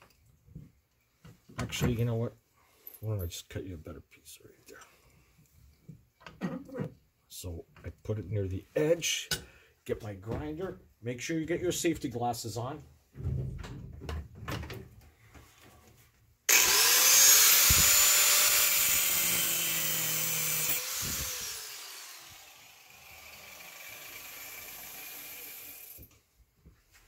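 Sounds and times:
angle grinder whine: 16.5 - 26.1
grinder cutting steel: 16.5 - 26.1.

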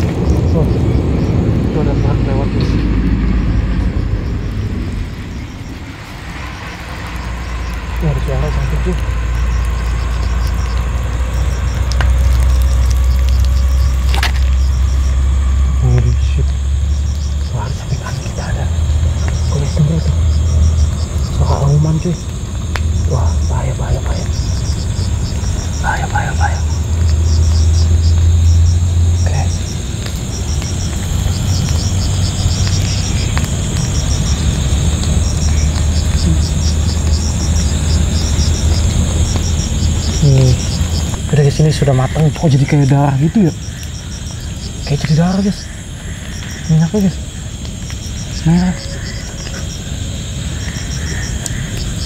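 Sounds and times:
crickets chirping: 0.0 - 52.0
steady low hum: 0.0 - 52.0
steady low rumble: 0.0 - 52.0
high insect buzz: 3.3 - 52.0
fish sizzling in hot oil: 5.4 - 15.8, 26.5 - 41.8.

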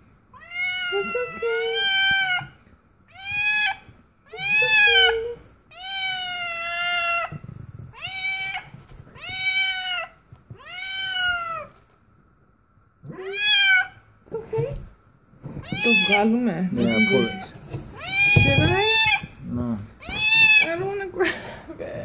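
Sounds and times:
cat meowing: 0.3 - 11.8, 13.0 - 14.0, 15.6 - 19.4, 20.0 - 20.8.

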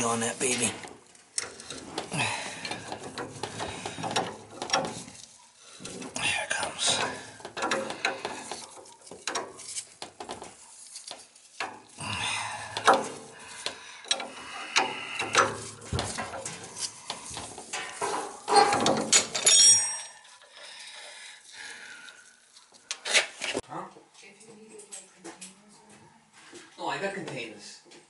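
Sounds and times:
ringing metal clink: 18.5 - 20.3.

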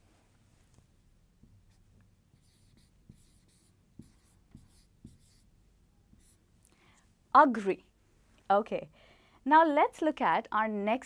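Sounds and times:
marker scratching on whiteboard: 1.5 - 5.5, 6.1 - 6.4.

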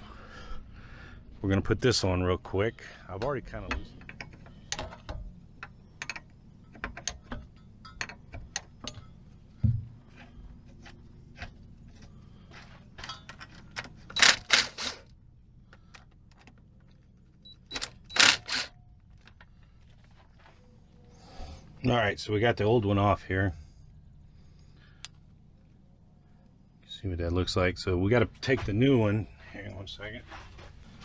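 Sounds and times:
tools clinking on metal fittings: 3.2 - 9.3, 13.0 - 15.0
impact driver bursts: 14.1 - 15.1, 17.7 - 18.8.

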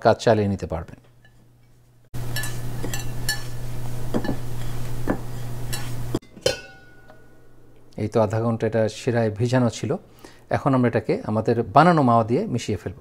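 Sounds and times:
spoon clinking and scraping a bowl: 1.2 - 7.4.

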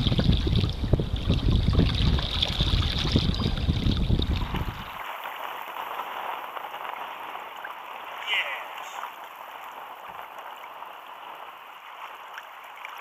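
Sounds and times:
wind buffeting microphone: 0.0 - 5.2
waves hissing and sloshing: 4.1 - 13.0.

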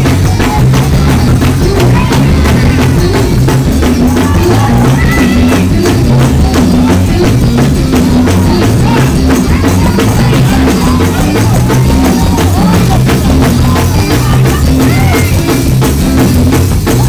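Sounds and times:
fast drum beat: 0.0 - 17.0
gospel praise music: 0.0 - 17.0.

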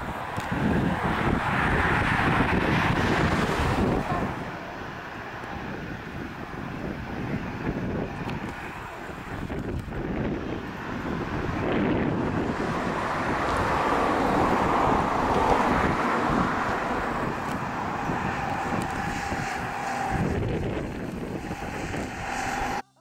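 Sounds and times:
jet engines roaring: 0.0 - 22.9.

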